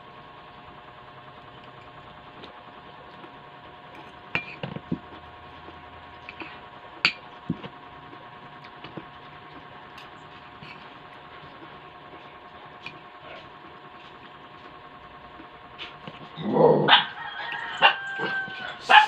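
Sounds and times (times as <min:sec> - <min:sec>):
steady hum: 0:00.0 - 0:19.0
cutlery clinking against ceramic bowl: 0:04.0 - 0:04.7.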